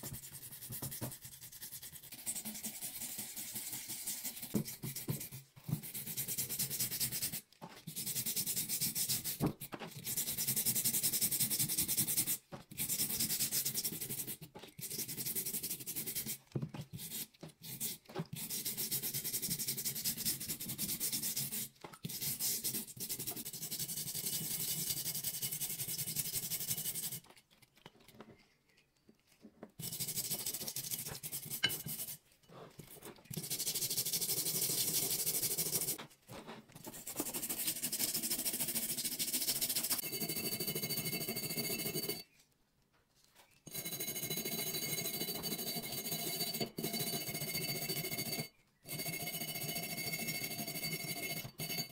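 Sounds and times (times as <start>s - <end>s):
toothbrush scrubbing metal: 0.0s - 28.2s, 29.8s - 36.0s, 36.8s - 42.3s, 43.7s - 51.9s.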